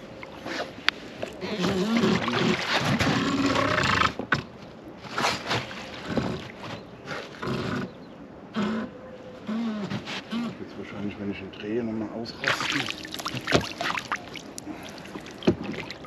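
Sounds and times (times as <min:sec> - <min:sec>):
fish splashing against boat: 0:12.4 - 0:16.0.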